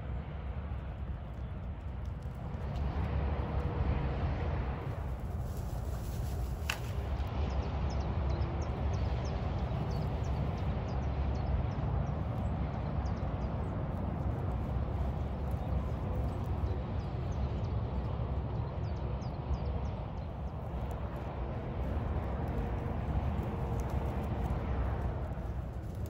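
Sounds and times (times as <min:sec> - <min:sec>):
wind rumble on microphone: 0:00.0 - 0:26.0
rustling in dry grass: 0:02.0 - 0:07.3, 0:12.2 - 0:17.0, 0:20.4 - 0:26.0
sharp snap: 0:06.4 - 0:07.2.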